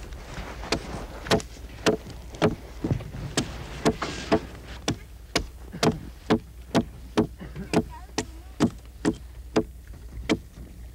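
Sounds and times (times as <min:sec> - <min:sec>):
hatchet chopping wood: 0:00.7 - 0:02.6, 0:03.4 - 0:09.7, 0:10.3 - 0:10.5.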